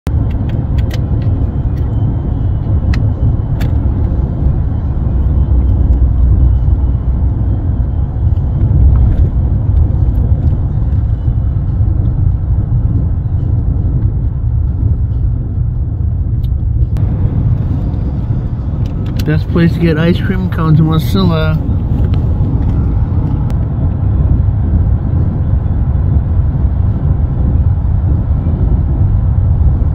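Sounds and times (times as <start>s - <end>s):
vehicle driving rumble: 0.1s - 29.9s.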